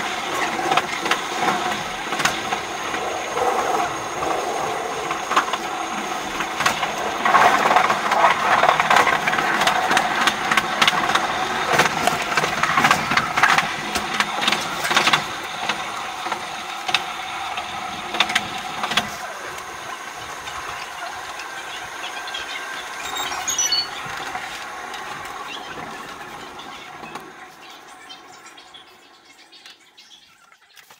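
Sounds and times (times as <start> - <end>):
train wheels clicking over rail joints: 0.0 - 28.9
high squeal: 22.7 - 24.4.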